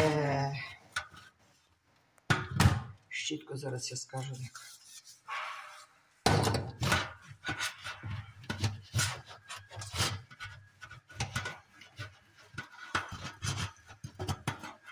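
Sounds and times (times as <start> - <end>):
sponge scrubbing metal mesh: 6.9 - 14.9.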